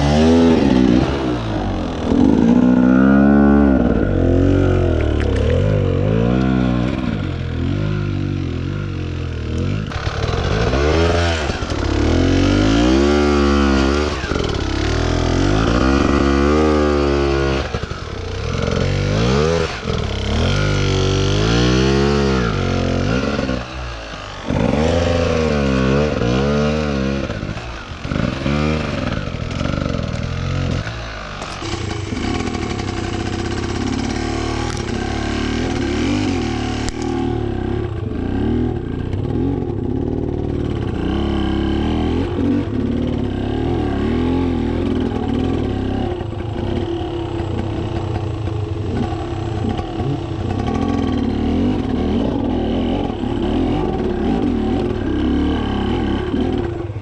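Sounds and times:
dirt bike engines revving: 0:00.0 - 0:57.0.

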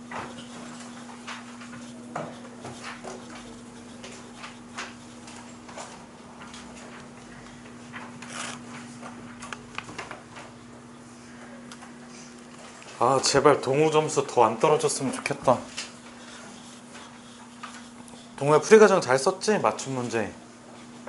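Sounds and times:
eraser wiping chalkboard: 0:00.0 - 0:07.0, 0:14.6 - 0:19.9
steady low hum: 0:00.0 - 0:21.0
people moving about: 0:00.1 - 0:19.0.

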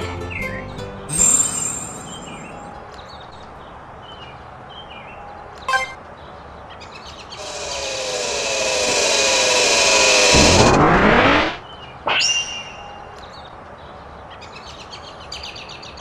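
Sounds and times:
power-up whir with falling tones: 0:07.4 - 0:13.0.

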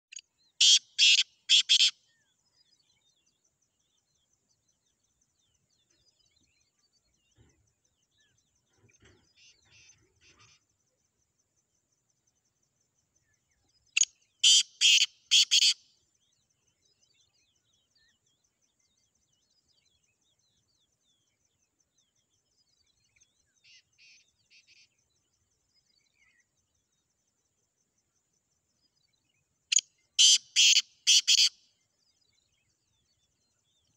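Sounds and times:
distant bird calls: 0:00.0 - 0:33.9
bird harsh rasping calls: 0:00.6 - 0:01.9, 0:14.0 - 0:15.8, 0:29.7 - 0:31.5.

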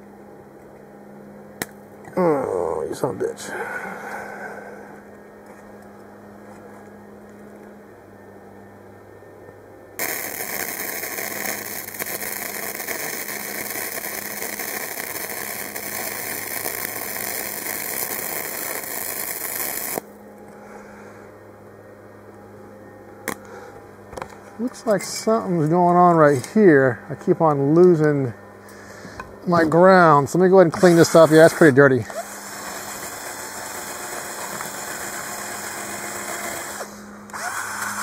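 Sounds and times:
low welder hum: 0:00.0 - 0:38.0
welding arc crackling: 0:10.0 - 0:20.2, 0:30.9 - 0:36.9.

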